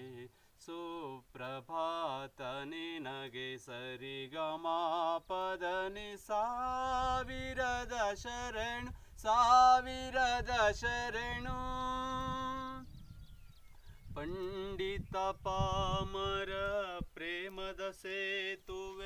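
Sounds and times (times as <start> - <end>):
man singing unaccompanied: 0.0 - 13.1, 14.0 - 19.0.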